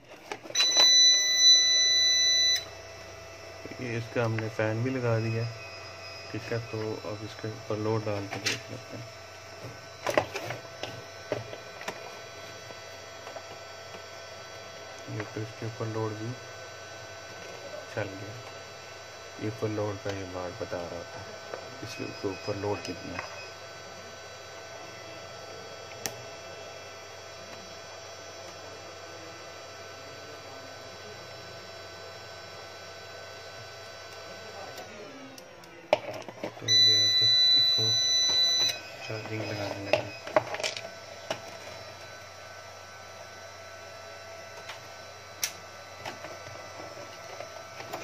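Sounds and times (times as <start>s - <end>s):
steady electrical hum: 0.0s - 48.0s
high steady tones: 0.4s - 13.1s, 36.5s - 48.0s.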